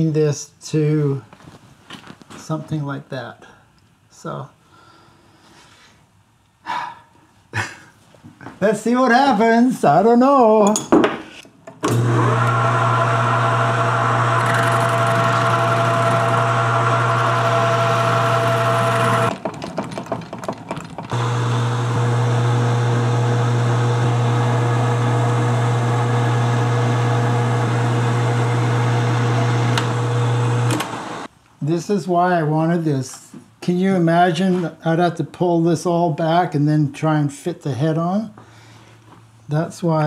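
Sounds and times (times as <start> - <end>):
metal lathe running: 11.9 - 19.4, 21.0 - 31.3.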